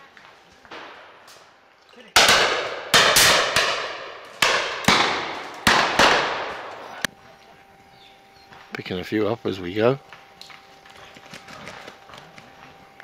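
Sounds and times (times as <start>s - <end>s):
shotgun shots echoing: 2.2s - 6.9s.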